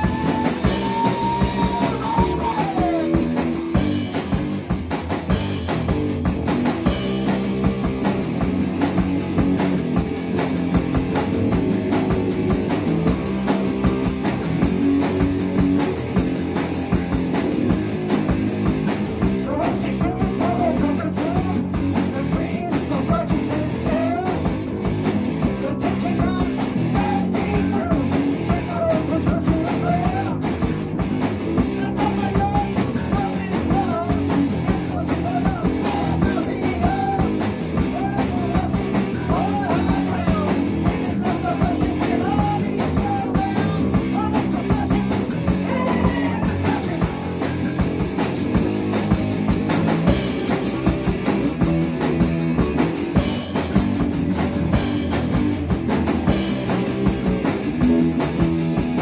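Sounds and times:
man singing into a microphone: 0:00.0 - 0:03.3, 0:19.4 - 0:24.5, 0:25.6 - 0:30.5, 0:31.7 - 0:47.2
bass guitar: 0:00.0 - 0:59.0
drum kit: 0:00.0 - 0:59.0
electric guitar: 0:00.0 - 0:59.0.

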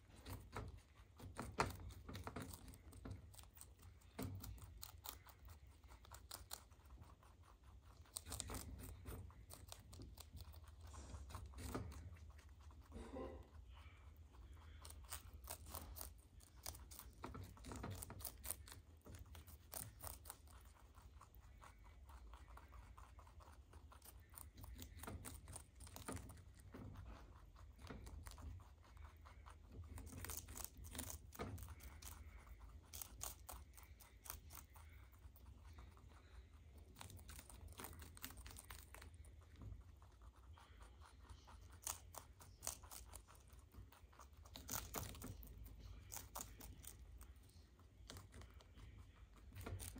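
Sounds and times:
low steady hum: 0:00.0 - 0:49.9
rabbits chewing leaves: 0:00.0 - 0:49.9.

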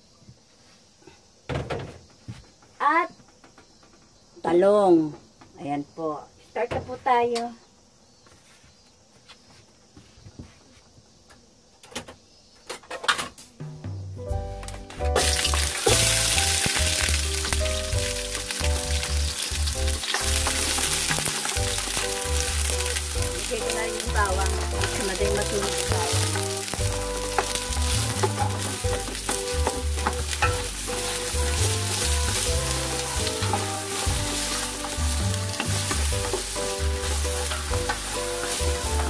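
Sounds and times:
onions sizzling in hot oil: 0:15.2 - 0:39.0.

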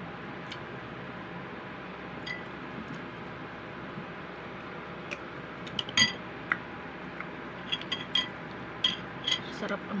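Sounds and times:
utensils clinking on dish: 0:07.7 - 0:09.6.

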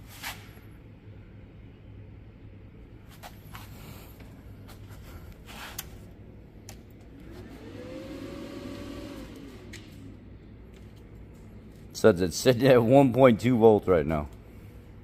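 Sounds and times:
low steady hum: 0:00.0 - 0:15.0
motor-like whir: 0:07.1 - 0:10.2.

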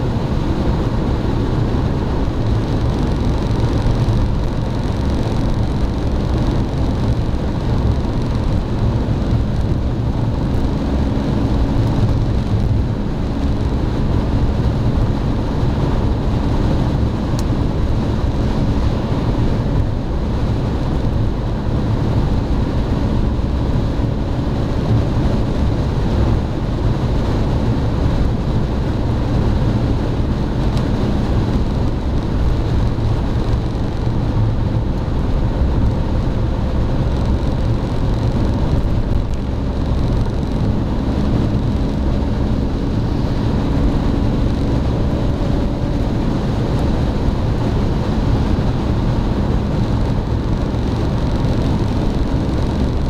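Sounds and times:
road and wind roar in car: 0:00.0 - 0:53.0.

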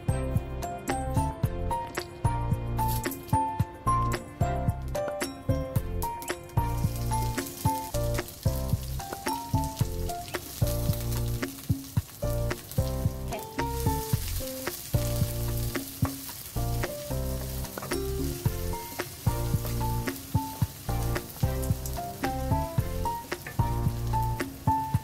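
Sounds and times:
light rhythmic background music: 0:00.0 - 0:25.0
onion sizzling in hot oil: 0:02.8 - 0:25.0
wooden spatula knocking on pan: 0:13.5 - 0:25.0.

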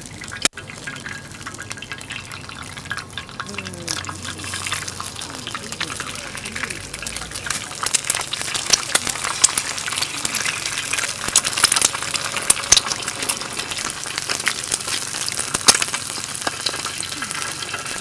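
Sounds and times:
eggs sizzling in oil: 0:00.0 - 0:18.0
eggs being cracked: 0:00.4 - 0:18.0.

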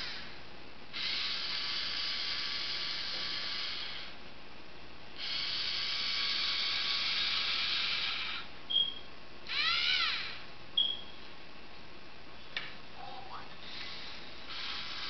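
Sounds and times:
servo motors whirring: 0:01.0 - 0:04.1, 0:05.2 - 0:08.4, 0:09.5 - 0:10.4, 0:13.7 - 0:15.0.

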